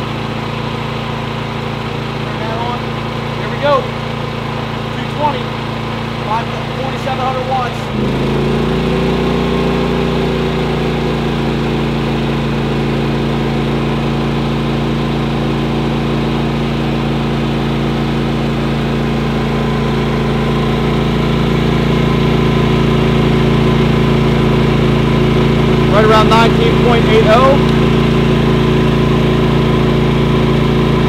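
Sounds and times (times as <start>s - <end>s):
generator engine running: 0.0s - 31.0s.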